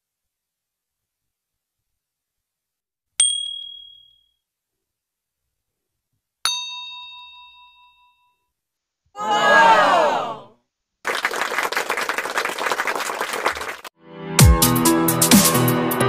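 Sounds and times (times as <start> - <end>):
fuller bell ding: 3.2 - 4.3, 6.5 - 8.4
short high ding: 3.2 - 4.3, 6.5 - 8.4.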